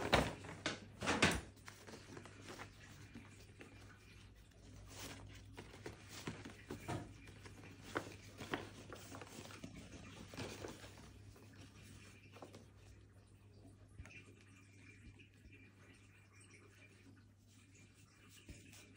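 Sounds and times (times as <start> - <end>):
paper gift bag rustling: 0.0 - 12.8.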